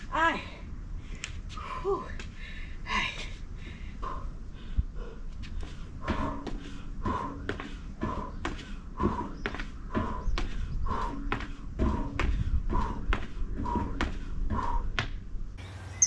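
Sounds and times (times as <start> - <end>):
hard breathing: 1.0 - 15.3
feet striking the ground: 5.4 - 15.2.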